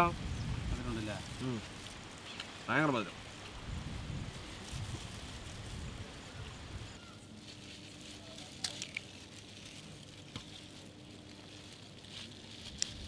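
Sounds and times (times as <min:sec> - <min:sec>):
outdoor air hiss: 0:00.0 - 0:07.0
fruit peels crackling and clicking: 0:08.2 - 0:13.0.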